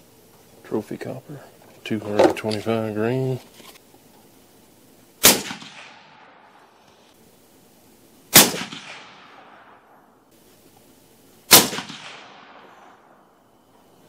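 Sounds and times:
gunshot echo: 5.2 - 6.6, 8.3 - 10.0, 11.5 - 13.2
suppressed rifle shots: 5.2 - 6.7, 8.3 - 10.1, 11.5 - 13.2.

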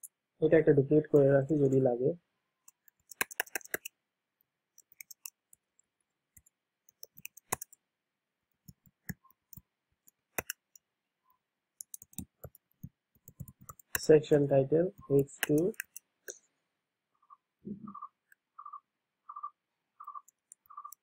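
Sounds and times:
computer keyboard keys clicking: 2.7 - 3.9, 4.8 - 5.6, 6.9 - 7.8, 10.4 - 10.8, 11.8 - 14.1, 15.0 - 16.0, 20.1 - 21.0.

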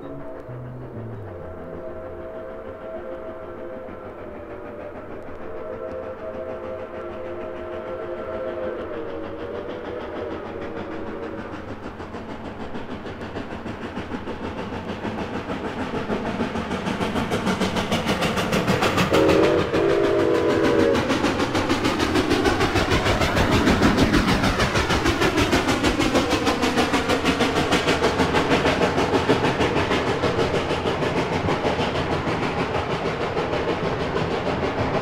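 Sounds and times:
steam whistle: 0.0 - 11.6, 18.8 - 21.6
steam locomotive exhaust beats: 0.0 - 35.0.

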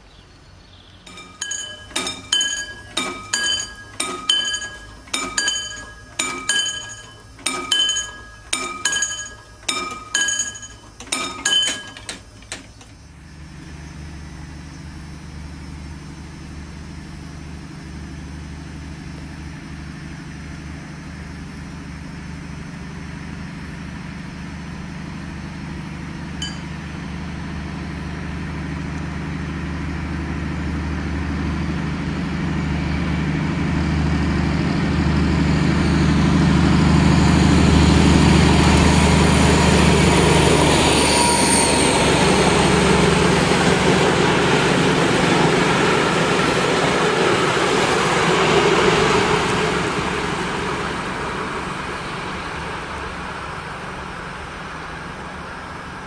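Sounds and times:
locomotive diesel drone: 0.0 - 56.0
bell ringing: 1.1 - 12.6, 26.4 - 26.9, 38.4 - 43.6.

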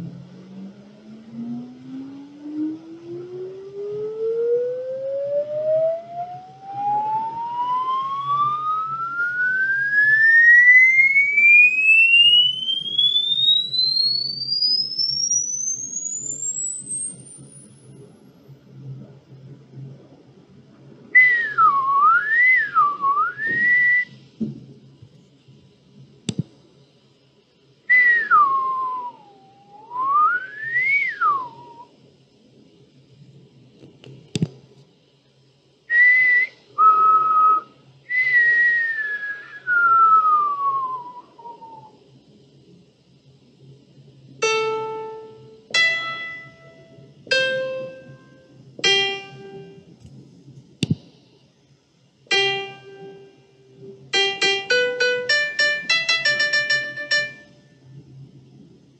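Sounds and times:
person whistling sliding note: 21.2 - 24.2, 27.9 - 31.9
keyboard notes ringing: 44.4 - 49.9, 52.3 - 53.4, 54.0 - 57.6.

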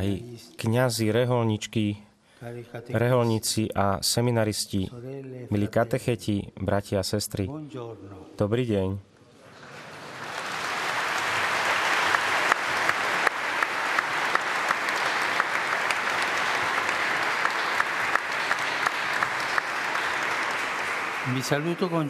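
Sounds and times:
audience applauding: 9.5 - 22.0.

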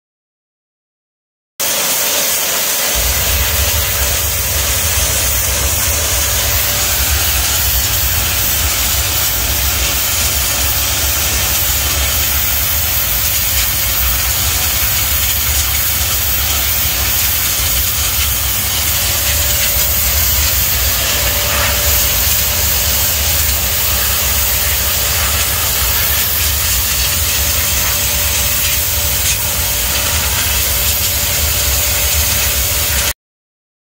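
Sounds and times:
pressure washer spraying concrete: 1.6 - 33.2
low rumble: 3.0 - 13.0.

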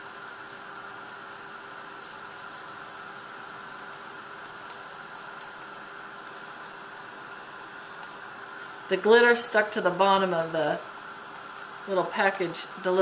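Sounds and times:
plastic cup ticking: 3.6 - 13.0.

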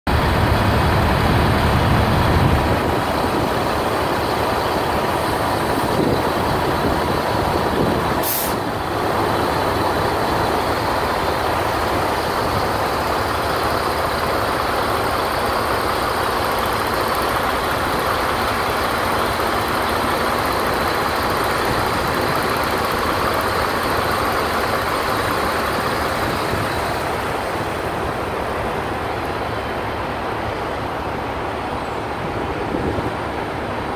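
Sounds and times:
truck diesel engine pulling away: 0.1 - 33.9
brief air hiss: 8.2 - 8.7.

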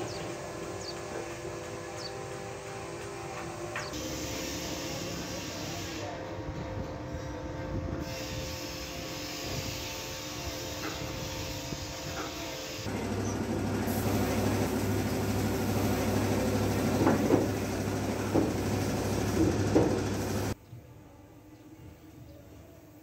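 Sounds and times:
steady machine hum: 0.0 - 8.2, 12.8 - 20.6
deep drone: 12.9 - 20.6.

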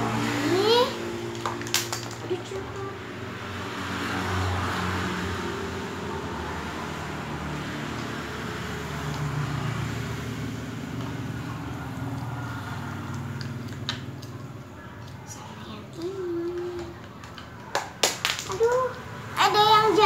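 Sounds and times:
traffic noise: 0.0 - 20.0.

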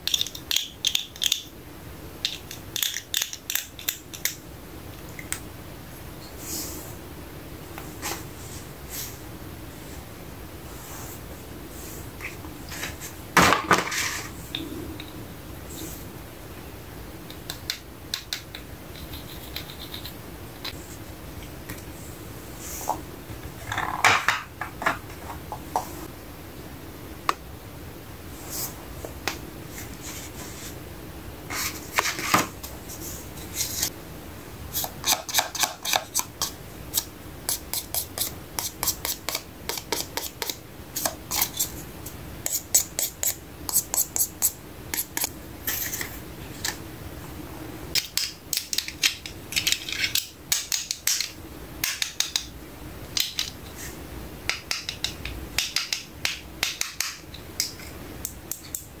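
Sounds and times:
plastic toy pieces clicking: 0.0 - 1.4.

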